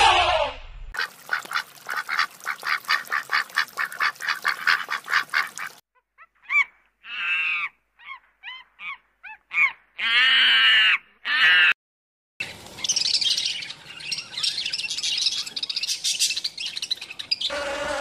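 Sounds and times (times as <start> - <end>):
ducks quacking: 1.0 - 5.8.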